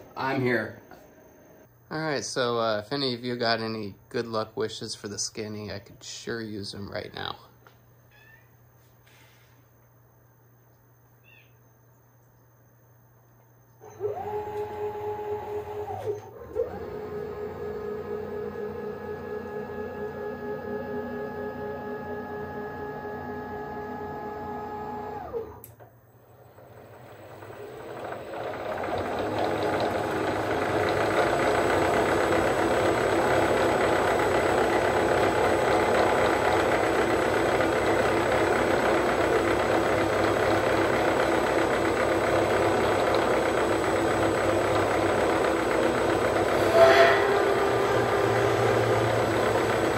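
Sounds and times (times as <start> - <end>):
mill spindle spinning: 0.0 - 7.8, 13.7 - 49.9
click: 25.6 - 25.9.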